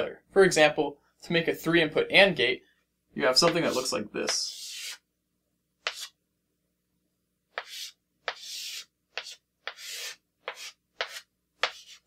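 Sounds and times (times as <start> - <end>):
chalk scraping on blackboard: 3.4 - 5.0, 5.8 - 6.2, 7.5 - 12.0.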